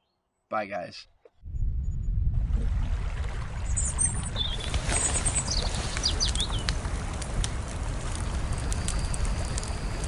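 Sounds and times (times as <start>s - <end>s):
low rumble: 1.4s - 4.6s
small bird chirping: 3.8s - 6.7s
faint clicks: 5.9s - 10.0s.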